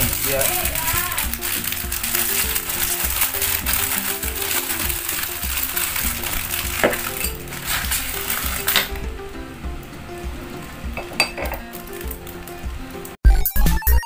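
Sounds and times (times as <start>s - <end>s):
plastic bag crinkling and tearing: 0.0s - 9.1s, 11.6s - 12.6s
soft background music: 0.0s - 13.2s.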